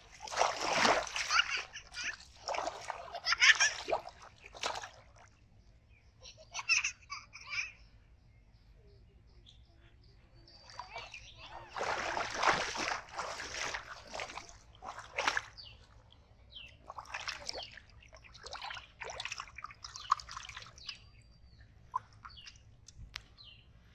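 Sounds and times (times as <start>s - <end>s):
fish splashing in water-filled pot: 0.0s - 5.0s, 10.8s - 15.6s, 16.8s - 20.9s.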